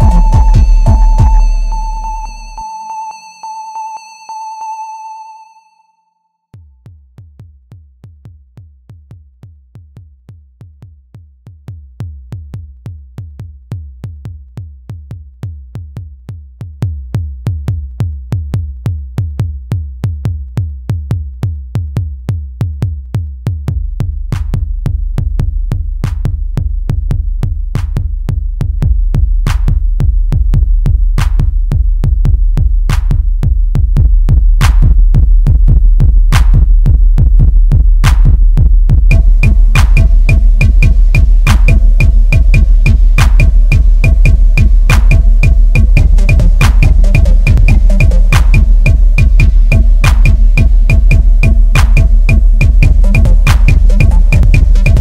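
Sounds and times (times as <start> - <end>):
deep bass: 0.0 - 2.6, 6.6 - 55.0
drum machine kick beat: 0.0 - 3.8, 6.6 - 55.0
held synth tone: 0.0 - 6.2.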